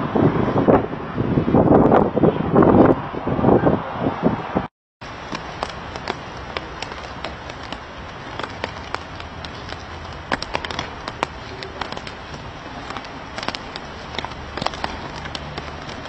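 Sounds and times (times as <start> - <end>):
wind on microphone: 0.0 - 16.0
crackling clicks: 5.1 - 16.0.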